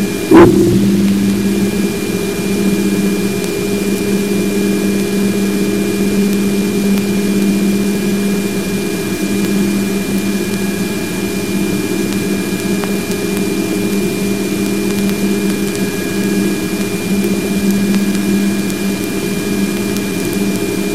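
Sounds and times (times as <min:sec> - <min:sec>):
thin high whine: 0:00.0 - 0:03.2
faint lower tone: 0:00.3 - 0:02.1
strong low hum: 0:00.3 - 0:03.1.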